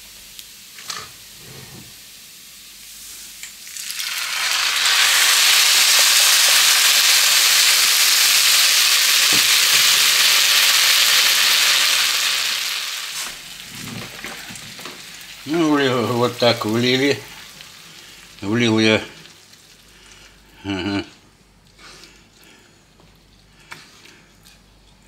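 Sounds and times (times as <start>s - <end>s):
liquid sizzling in hot pan: 0.0s - 20.4s
faint frying: 0.0s - 25.0s.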